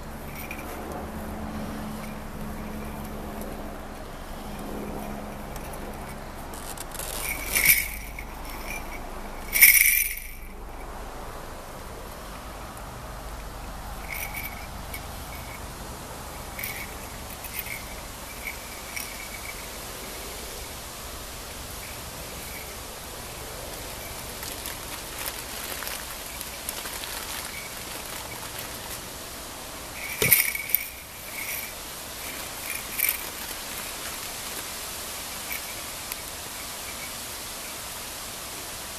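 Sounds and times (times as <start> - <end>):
steady outdoor hiss: 0.0 - 38.9
small bells jingling on cat collar: 0.2 - 0.8, 4.6 - 6.3, 6.9 - 11.0, 14.0 - 20.6, 21.7 - 28.9, 30.0 - 37.9.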